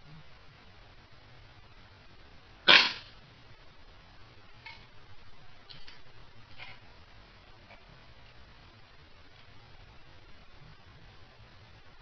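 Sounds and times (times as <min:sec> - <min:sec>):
airsoft pistol shot: 0:02.7 - 0:03.1.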